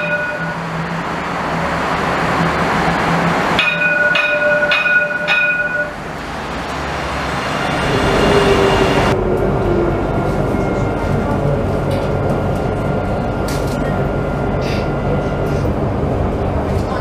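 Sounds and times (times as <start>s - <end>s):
tram warning bell ringing: 0.0s - 1.7s, 2.4s - 17.0s
tram rolling hum: 0.0s - 17.0s
low falling tone: 6.2s - 16.6s.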